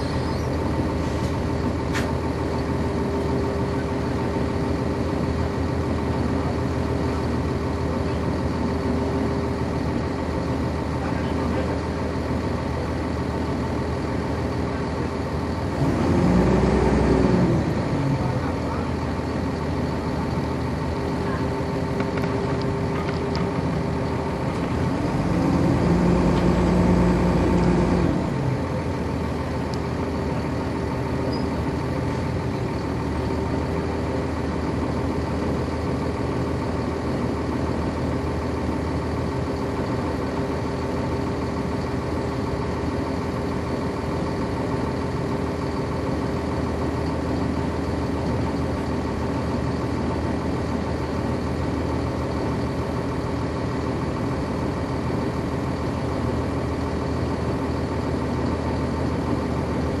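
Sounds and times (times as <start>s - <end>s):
bus diesel engine running: 0.0s - 60.0s.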